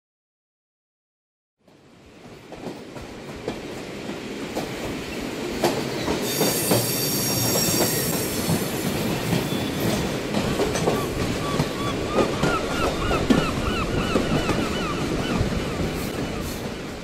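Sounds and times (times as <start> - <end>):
train running on rails: 1.6 - 17.0
wheels clacking over rail joints: 2.3 - 17.0
high wheel squeal: 6.1 - 8.8.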